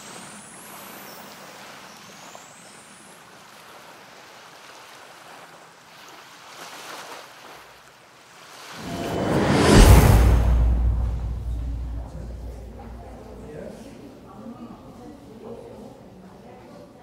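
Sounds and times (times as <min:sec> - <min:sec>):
loud rushing swell: 0:08.8 - 0:13.6
outdoor rushing ambience: 0:08.8 - 0:13.6.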